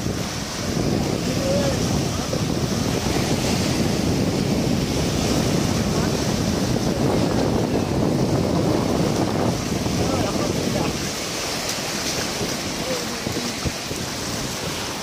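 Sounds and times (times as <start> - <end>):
small waves breaking: 0.0 - 15.0
wind buffeting microphone: 0.0 - 15.0.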